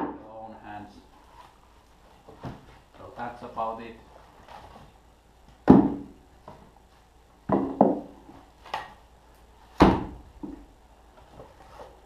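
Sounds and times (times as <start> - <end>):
firewood clunking when stacked: 7.5 - 8.9.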